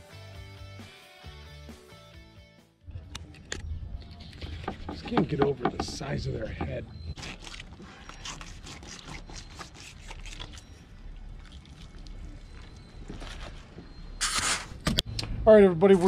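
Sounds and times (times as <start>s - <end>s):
knife scraping through fish: 7.2s - 10.8s.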